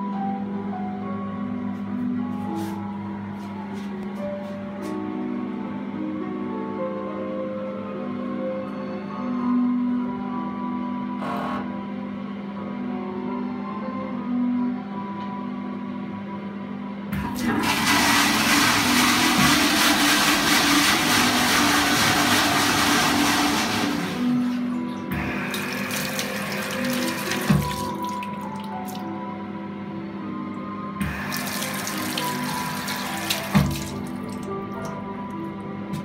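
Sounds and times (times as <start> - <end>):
background music: 0.0 - 36.0
toilet flush rushing: 17.2 - 29.0, 31.0 - 35.0
tap water splashing into sink: 25.9 - 29.0, 31.0 - 34.9.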